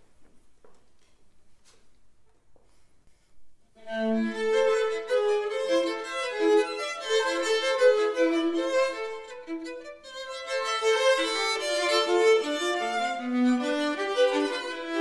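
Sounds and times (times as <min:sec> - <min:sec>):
violin and viola duet: 0:03.8 - 0:15.0.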